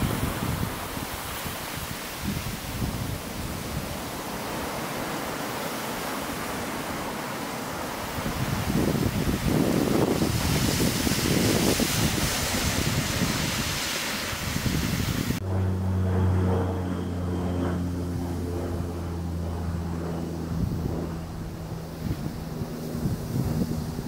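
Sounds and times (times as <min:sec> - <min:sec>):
waves washing through slush ice: 0:00.0 - 0:15.4
wind on microphone: 0:00.0 - 0:24.0
low hum of held tones: 0:15.4 - 0:24.0.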